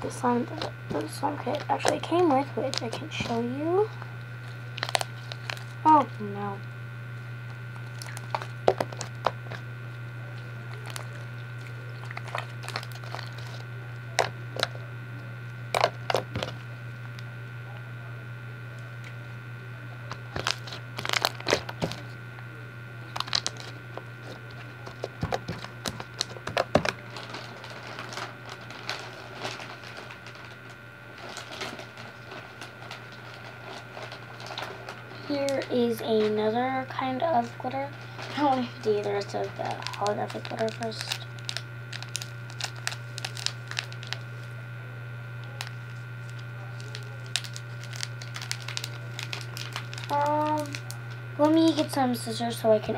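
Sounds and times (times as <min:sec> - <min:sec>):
steady low hum: 0:00.0 - 0:52.9
slime squished by hand: 0:20.3 - 0:22.0.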